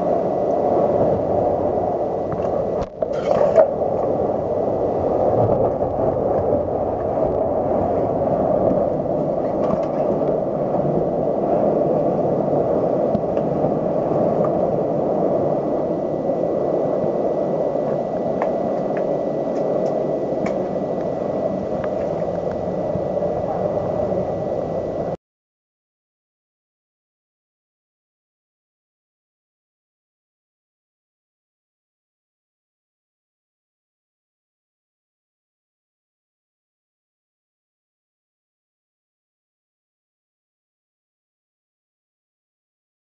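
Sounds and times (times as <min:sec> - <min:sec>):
strong wind rushing: 0:00.0 - 0:25.2.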